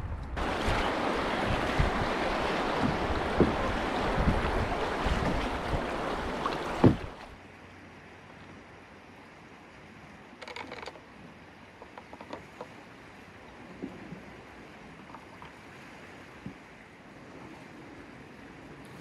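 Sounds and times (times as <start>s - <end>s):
wind on microphone: 0.0s - 7.3s
riverbank hiss: 0.4s - 7.4s
rushing river water: 0.4s - 19.0s.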